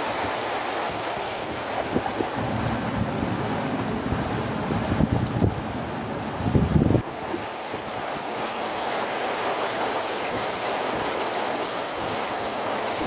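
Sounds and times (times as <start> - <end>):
water rushing along boat hull: 0.0 - 13.0
wind buffeting microphone: 0.9 - 8.4.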